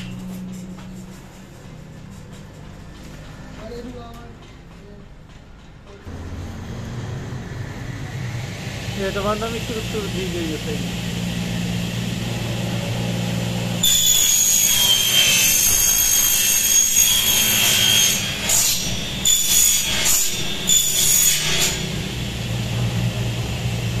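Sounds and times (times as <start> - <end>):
power saw cutting aluminium: 6.1 - 24.0.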